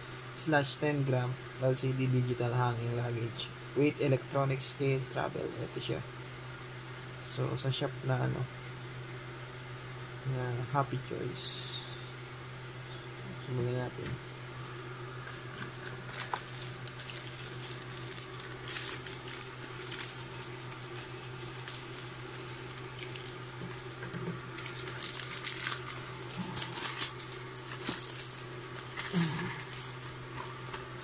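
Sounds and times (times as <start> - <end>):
steady low hum: 0.0 - 31.0
plastic pouch crinkling: 15.6 - 30.6.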